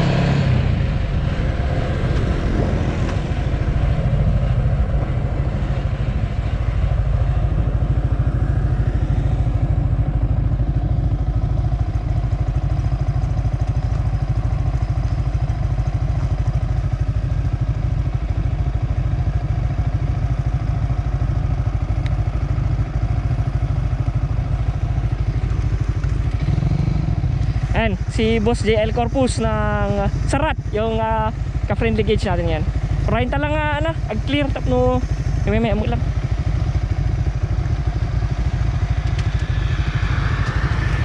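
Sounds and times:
wind rumble on microphone: 0.0s - 19.7s, 23.9s - 41.0s
motorcycle engine running: 0.0s - 41.0s.

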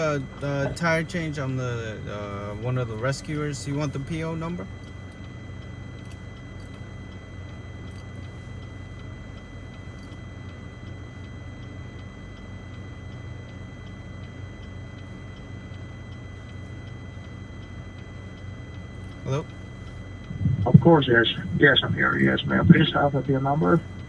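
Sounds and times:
car cabin hum: 0.0s - 24.0s
faint high-pitched whine: 0.0s - 24.0s.

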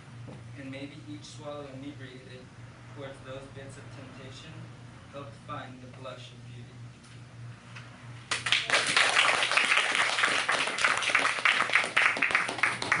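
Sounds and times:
audience applauding: 8.3s - 13.0s.

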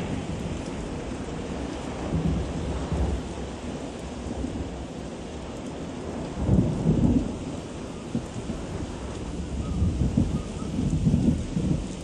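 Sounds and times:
storm wind buffeting microphone: 0.0s - 12.0s.

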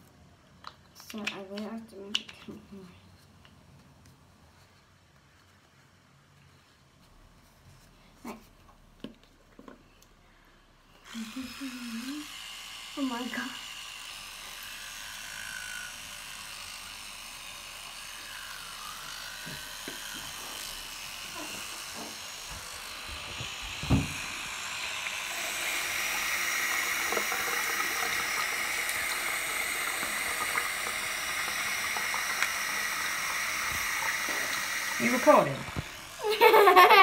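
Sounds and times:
electric toothbrush buzzing: 10.9s - 37.0s.

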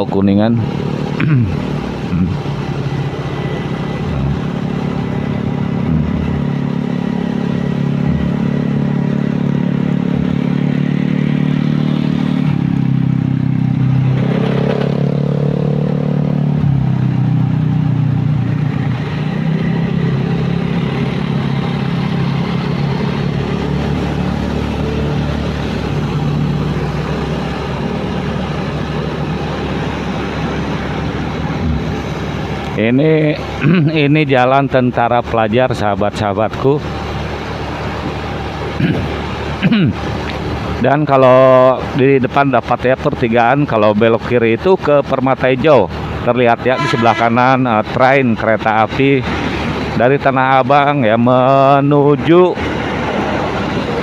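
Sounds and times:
motorcycle engine running: 0.0s - 34.2s, 36.8s - 42.2s, 45.6s - 47.3s
road noise: 0.0s - 54.0s.

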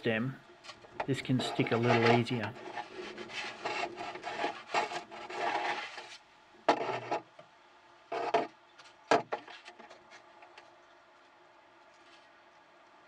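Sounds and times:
wooden stick scraping plastic tube: 0.6s - 7.3s, 8.1s - 10.6s.

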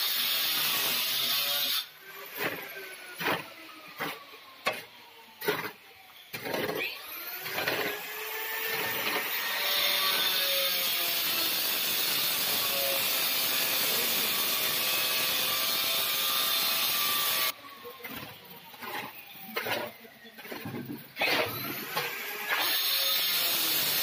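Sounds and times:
shovel scraping wet mortar: 0.4s - 9.4s, 18.0s - 24.0s.

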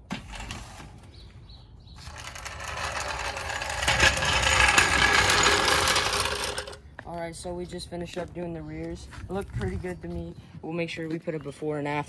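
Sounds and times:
floor jack wheels rattling on concrete: 1.9s - 6.9s.

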